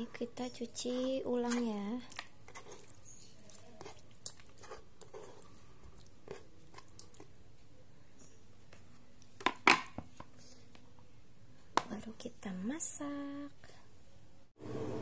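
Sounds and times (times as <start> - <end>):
soft wet handling sounds: 0.3 - 9.4.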